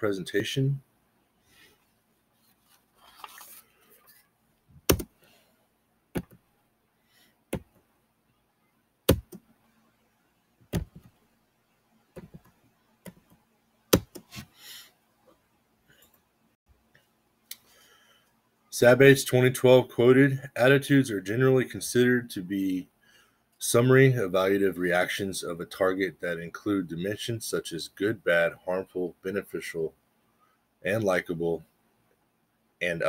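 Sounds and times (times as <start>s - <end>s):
soft rustle: 1.5s - 4.4s.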